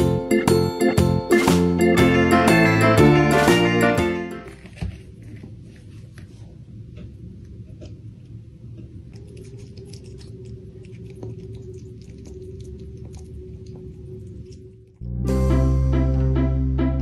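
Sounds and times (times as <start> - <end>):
low steady hum: 4.0 - 17.0
squirrel chewing wet clicks: 8.8 - 15.0.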